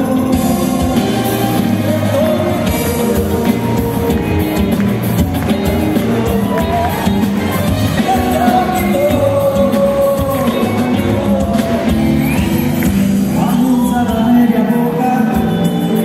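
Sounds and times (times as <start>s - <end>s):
live band with drums and guitar: 0.0s - 16.0s
audience shouting and whooping: 0.9s - 13.4s.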